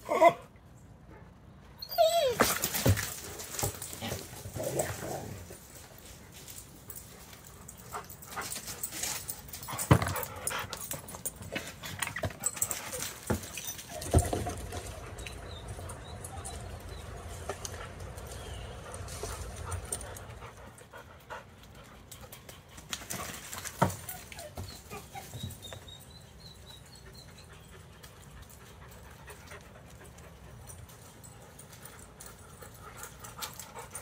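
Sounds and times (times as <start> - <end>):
dog whining: 1.8 - 2.8
dogs scuffling: 2.1 - 26.1.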